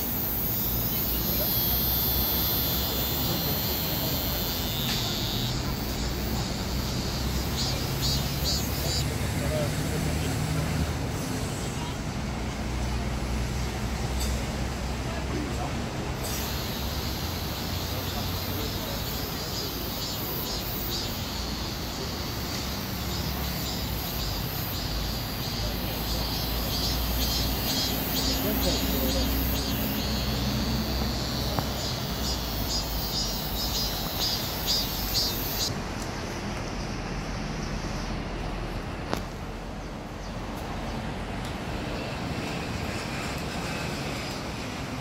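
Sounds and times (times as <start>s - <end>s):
pulsed insect calls: 0.0s - 10.6s, 13.2s - 35.7s
cicadas buzzing: 0.0s - 45.0s.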